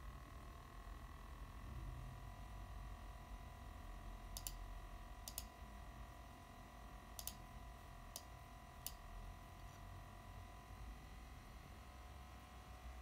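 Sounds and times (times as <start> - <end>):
laptop fan whine: 0.0 - 13.0
sharp clicks: 4.4 - 4.6, 7.2 - 7.4.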